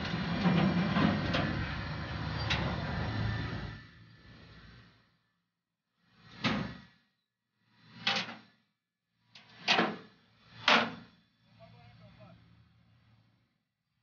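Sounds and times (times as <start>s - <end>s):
metal flatbed sliding: 0.0s - 4.9s, 6.1s - 7.0s.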